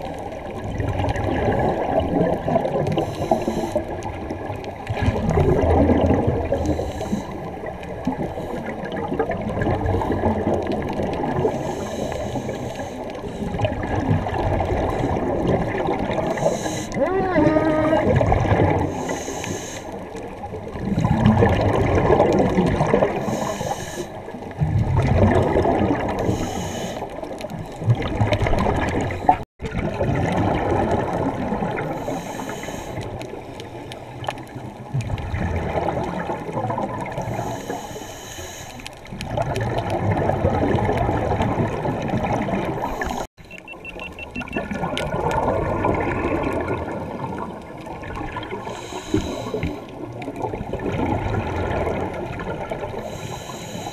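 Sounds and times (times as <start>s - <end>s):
gurgling exhaust bubbles: 0.0s - 11.8s, 13.1s - 19.1s, 20.3s - 26.5s, 27.2s - 32.2s, 34.3s - 37.5s, 39.1s - 53.2s
regulator inhale hiss: 2.9s - 3.9s, 6.5s - 7.6s, 11.4s - 13.6s, 16.2s - 17.0s, 18.8s - 20.1s, 23.2s - 24.3s, 26.2s - 27.8s, 32.0s - 34.3s, 37.2s - 39.0s, 42.8s - 43.3s, 48.6s - 49.9s, 53.0s - 53.9s.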